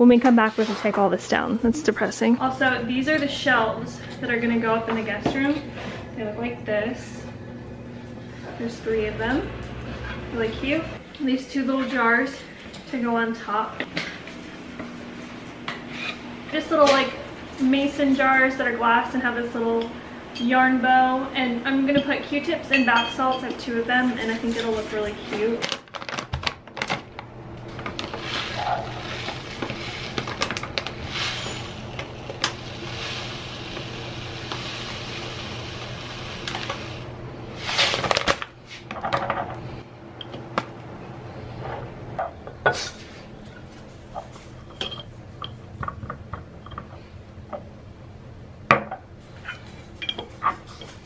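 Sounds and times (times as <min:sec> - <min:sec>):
glass jars clinking on stone: 0:22.7 - 0:23.6, 0:44.7 - 0:45.6
bath salts pouring into glass jar: 0:31.0 - 0:32.0, 0:32.6 - 0:37.0.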